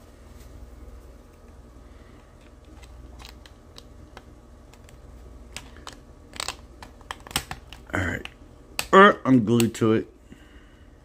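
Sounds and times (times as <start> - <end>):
plastic parts clicking together: 2.4 - 9.0.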